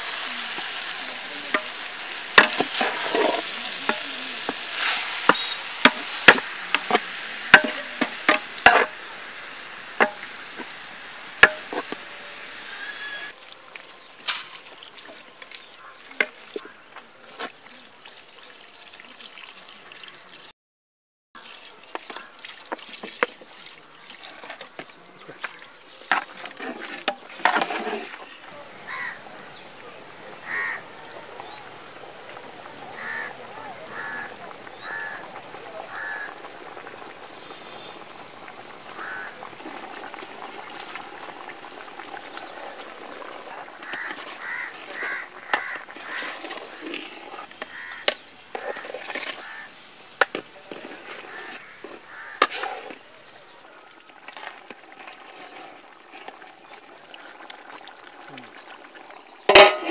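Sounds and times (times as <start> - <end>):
spatula scraping metal pot: 0.1 - 9.2, 26.0 - 28.4, 39.0 - 53.0, 54.3 - 56.6, 59.5 - 59.9
birds calling harshly: 0.3 - 7.2, 28.0 - 29.8, 30.4 - 31.9, 32.9 - 38.1, 38.9 - 39.4, 41.1 - 53.9
high bird chirps: 5.3 - 5.7.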